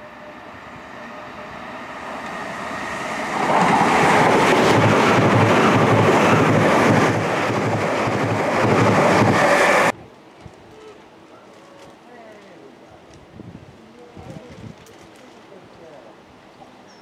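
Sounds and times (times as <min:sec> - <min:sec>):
train passing at speed: 0:00.0 - 0:10.0.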